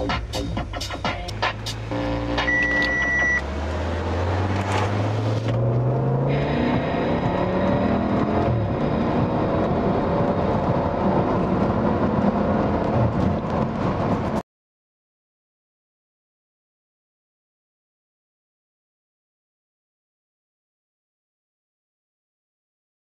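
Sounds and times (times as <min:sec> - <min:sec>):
road noise: 0:00.0 - 0:14.4
car accelerating past: 0:03.1 - 0:14.4.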